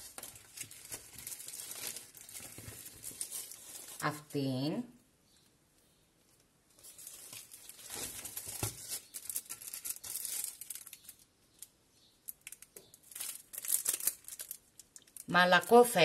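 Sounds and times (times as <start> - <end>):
plastic wrapping crinkling: 0.0 - 4.5, 6.2 - 16.0
small crackles and clicks: 6.2 - 16.0.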